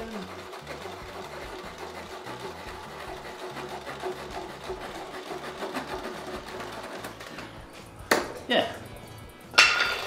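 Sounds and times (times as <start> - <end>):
reciprocating saw cutting wood: 0.0 - 7.4.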